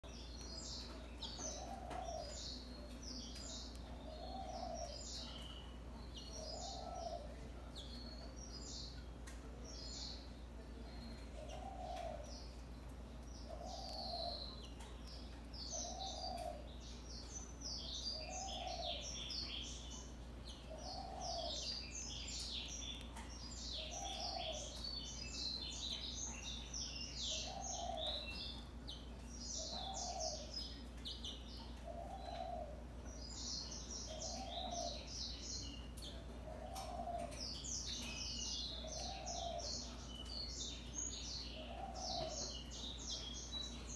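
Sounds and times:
finch chirping and twittering: 0:00.0 - 0:43.9
dove cooing: 0:01.4 - 0:03.0, 0:03.8 - 0:05.5, 0:06.3 - 0:07.5, 0:11.4 - 0:12.3, 0:13.5 - 0:14.6, 0:15.7 - 0:16.7, 0:18.1 - 0:19.2, 0:20.7 - 0:21.6, 0:23.8 - 0:24.8, 0:27.3 - 0:28.4, 0:29.6 - 0:30.5, 0:31.8 - 0:32.9, 0:34.1 - 0:35.1, 0:36.0 - 0:37.4, 0:38.7 - 0:40.0, 0:41.6 - 0:42.8.

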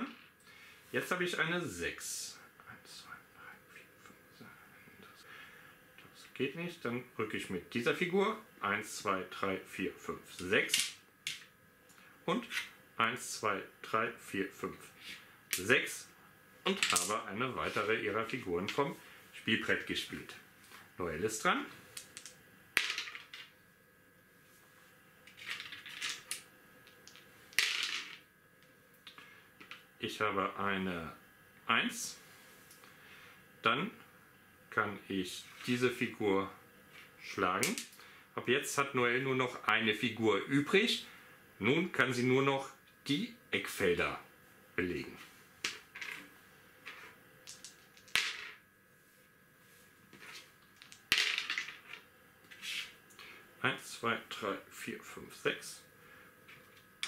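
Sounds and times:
dice clacking and rattling: 0:22.0 - 0:23.5, 0:25.3 - 0:28.2, 0:46.9 - 0:48.6, 0:50.8 - 0:52.0
dice clicking on wooden board: 0:47.5 - 0:48.5.

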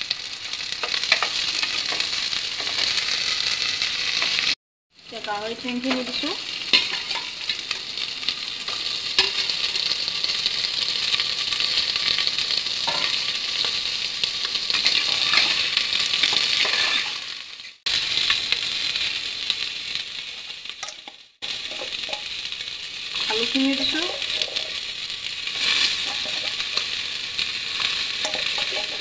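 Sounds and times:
meat sizzling in hot oil: 0:00.0 - 0:29.0
metal spatula clinking against pot: 0:20.8 - 0:21.1, 0:28.2 - 0:29.0.

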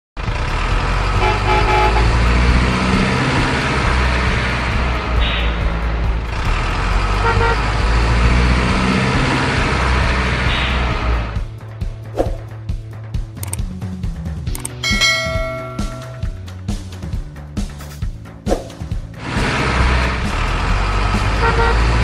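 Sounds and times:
truck engine rumbling: 0:00.2 - 0:22.0
truck horn toots: 0:00.9 - 0:03.0, 0:06.9 - 0:09.4, 0:21.1 - 0:22.0.

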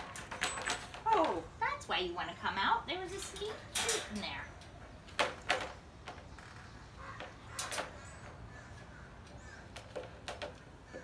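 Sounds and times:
wire crate door clinking: 0:03.1 - 0:04.5.

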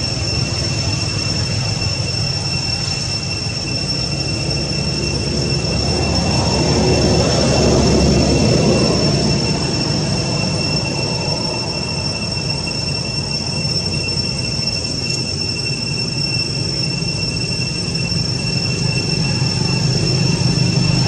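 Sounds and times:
high-pitched insect drone: 0:00.0 - 0:21.0
low rumbling noise: 0:00.0 - 0:21.0.

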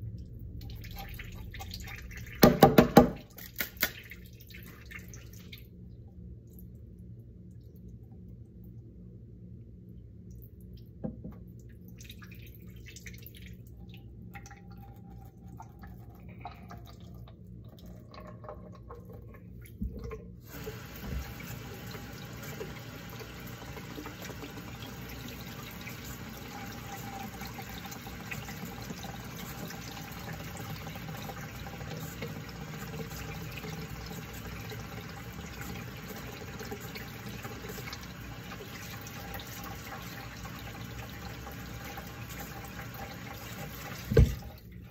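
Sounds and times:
tap water running into metal sink: 0:00.6 - 0:04.0, 0:19.8 - 0:44.8.

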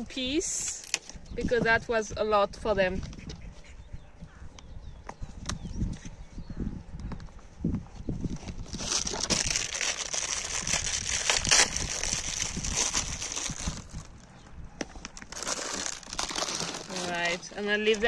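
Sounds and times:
plastic packet crinkling: 0:08.6 - 0:14.1, 0:15.1 - 0:18.0.

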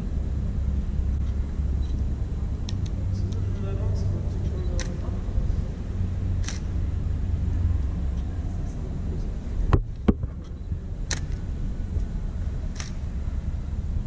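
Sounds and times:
low engine rumble echoing: 0:00.0 - 0:14.0
sharp clicks: 0:04.6 - 0:05.0, 0:06.4 - 0:06.8, 0:09.8 - 0:11.4, 0:12.7 - 0:13.0.

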